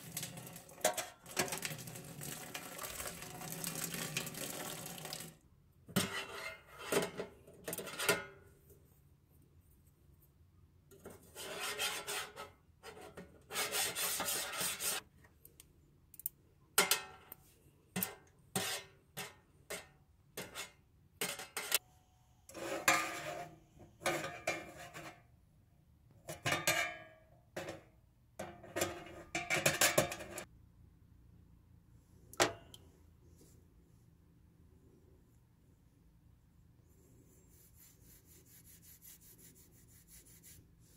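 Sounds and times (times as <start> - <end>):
metal tongs scraping a steel tray: 6.0 - 8.4, 11.3 - 15.0, 18.0 - 21.8, 22.5 - 25.2.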